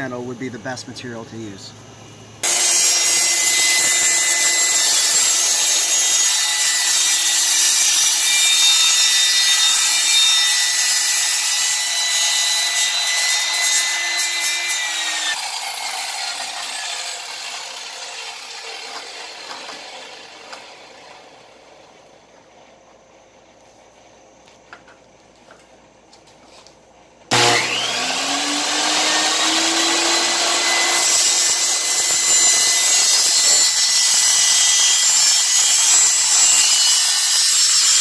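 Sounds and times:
table saw cutting plastic: 0:02.4 - 0:21.4, 0:27.3 - 0:38.0.

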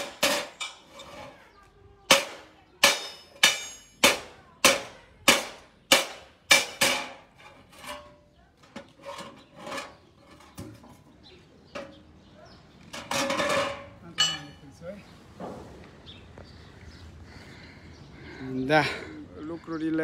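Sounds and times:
hammer striking copper sheet: 0:02.1 - 0:07.2.

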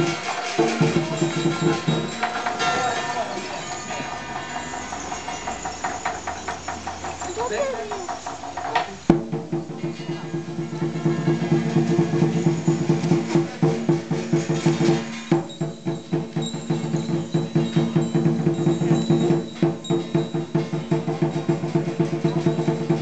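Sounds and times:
gong ringing: 0:00.0 - 0:08.0
cymbals ringing: 0:00.0 - 0:23.0
drum beaten in fast rhythm: 0:00.0 - 0:23.0.

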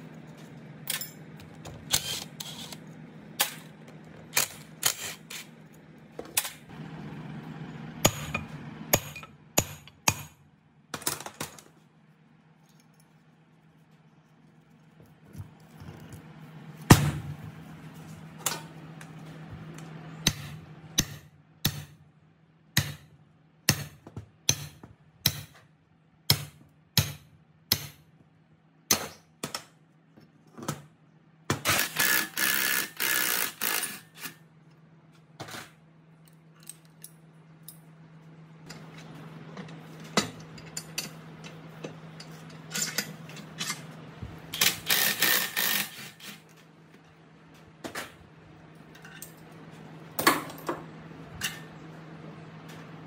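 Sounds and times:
steady low hum: 0:00.0 - 0:53.0
hammer striking steel drift: 0:08.0 - 0:10.4.

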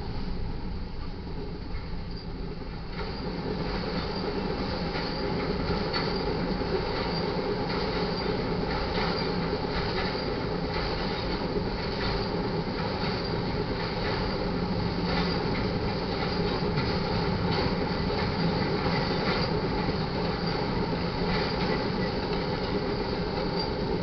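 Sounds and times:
train wheels clacking over rail joints: 0:01.7 - 0:24.0
faint high wheel squeals: 0:20.4 - 0:20.8, 0:21.4 - 0:24.0.

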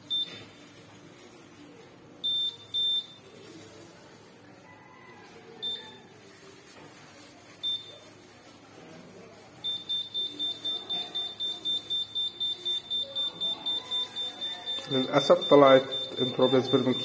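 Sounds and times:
backup power supply beeping: 0:09.7 - 0:17.0.

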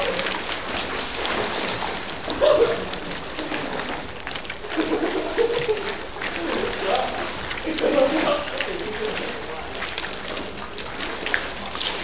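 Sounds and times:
pool water splashing: 0:00.0 - 0:12.0
faint voices: 0:06.3 - 0:10.6.

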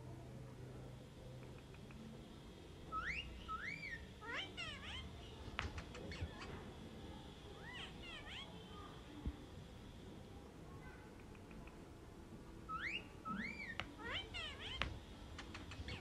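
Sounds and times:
sharp clicks: 0:01.4 - 0:02.1, 0:11.1 - 0:11.9, 0:14.8 - 0:16.0
parakeet whistling: 0:02.9 - 0:05.1, 0:12.7 - 0:14.8
parakeet chirps: 0:02.9 - 0:06.6, 0:07.6 - 0:08.5, 0:12.7 - 0:16.0.

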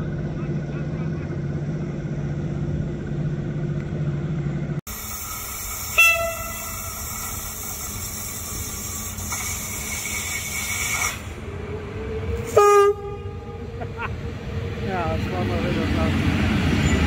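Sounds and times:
electric locomotive hiss and whine: 0:00.0 - 0:17.0
locomotive horn blast: 0:05.9 - 0:07.1, 0:12.4 - 0:13.8.

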